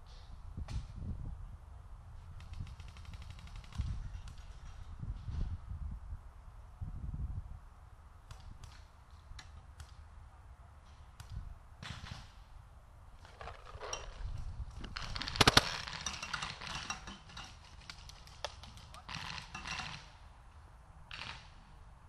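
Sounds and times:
paintball markers firing: 15.0s - 16.1s.

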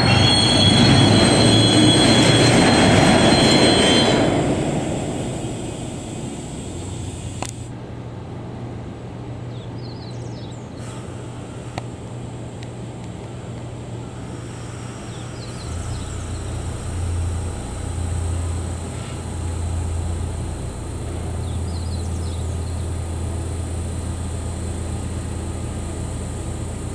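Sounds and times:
electric locomotive humming: 0.0s - 9.4s, 10.8s - 26.9s
bird chirps: 21.4s - 22.8s.

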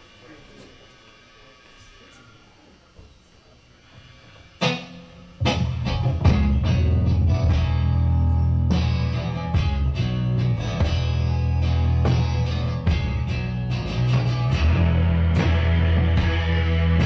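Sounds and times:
live rock band playing: 4.6s - 17.0s.

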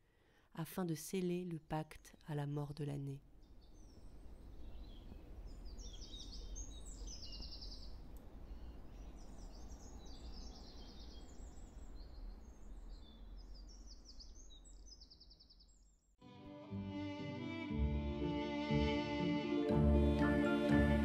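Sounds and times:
songbirds singing trills: 3.4s - 16.0s.

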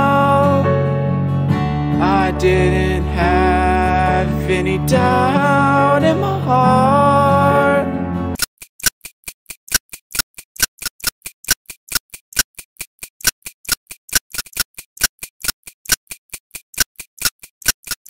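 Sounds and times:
rapid ticking clicks: 8.4s - 18.0s.

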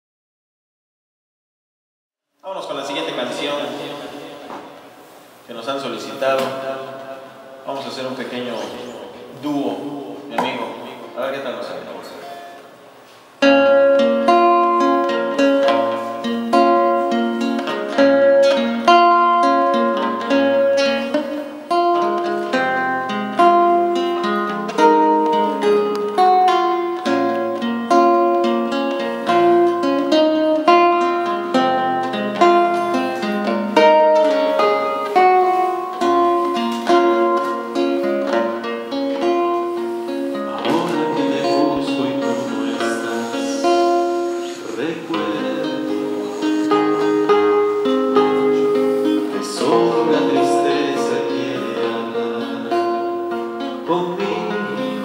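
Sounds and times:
classical guitar picking: 12.2s - 55.0s.

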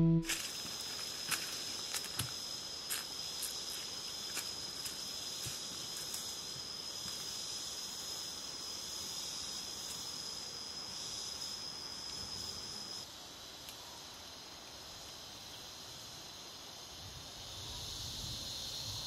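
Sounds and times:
insect high-pitched singing: 0.0s - 13.1s.

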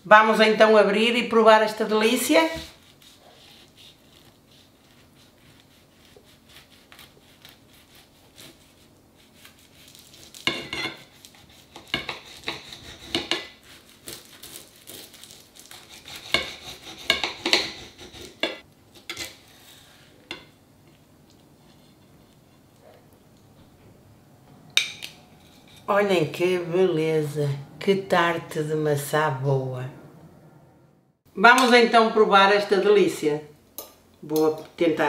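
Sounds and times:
knife crunching pastry crust: 2.7s - 18.4s.

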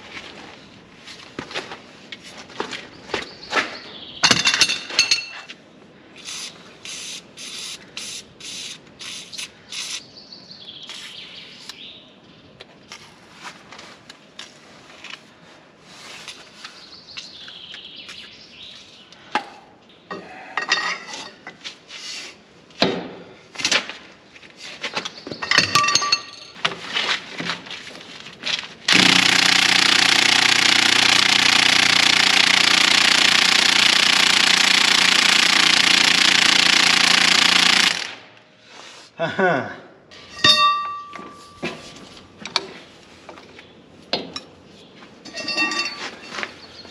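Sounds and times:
metal tools clinking: 4.2s - 5.5s, 20.6s - 21.5s, 25.4s - 26.6s, 40.1s - 41.9s, 45.2s - 46.6s
impact wrench hammering: 28.9s - 38.2s.

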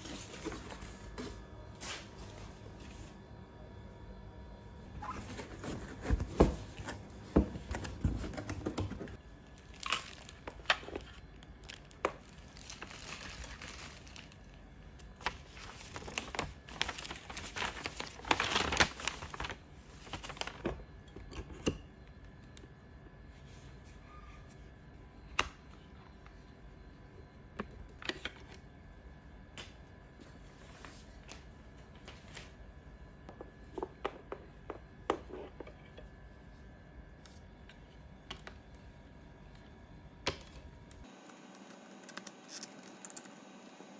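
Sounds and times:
plastic and paper crinkling: 9.5s - 20.9s.

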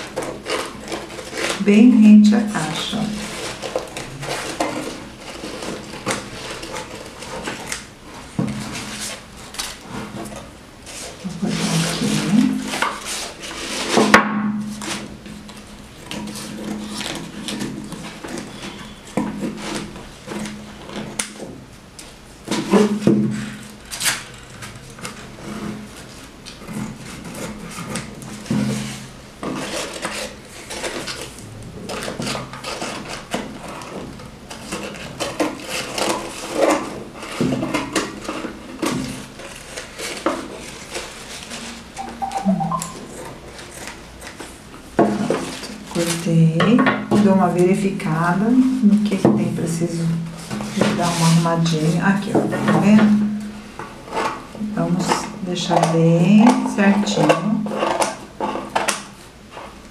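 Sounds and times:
scissors cutting paper: 0.0s - 1.6s, 29.4s - 41.7s.

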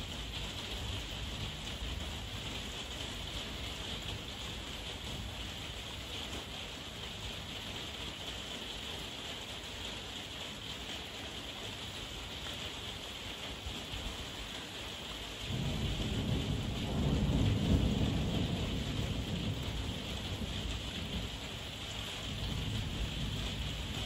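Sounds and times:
heavy rain: 0.0s - 24.0s
thunder rumbling: 15.5s - 24.0s.

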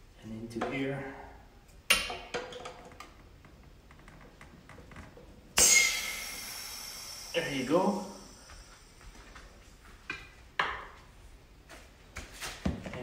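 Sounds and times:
compressed air hissing: 5.6s - 9.6s.

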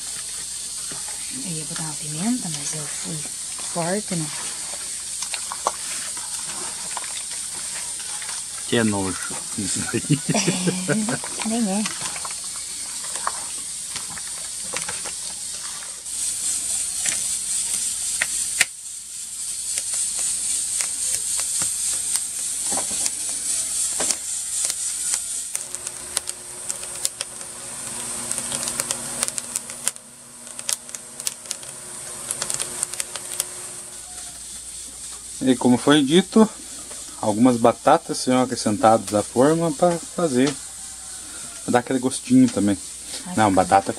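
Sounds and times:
steady hiss: 0.0s - 43.9s
utensils and dishes clicking: 19.4s - 27.5s.

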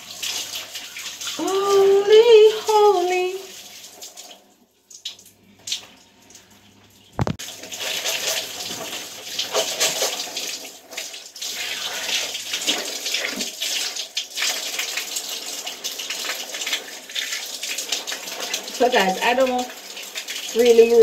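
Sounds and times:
shower water running: 0.0s - 21.0s
sharp knock: 7.2s - 7.4s.

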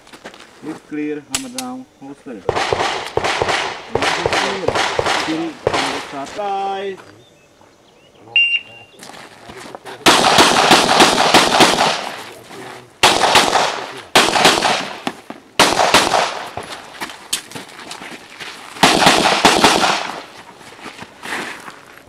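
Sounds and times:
handgun shots: 2.5s - 6.0s, 10.1s - 12.2s, 13.0s - 16.7s, 18.8s - 20.3s.

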